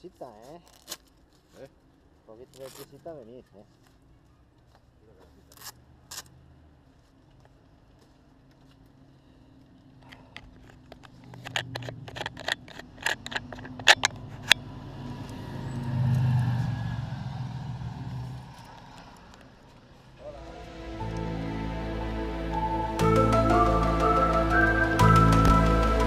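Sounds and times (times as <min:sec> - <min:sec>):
sharp clicks and knocks: 0:10.4 - 0:14.6
vehicle engine passing by: 0:14.0 - 0:26.0.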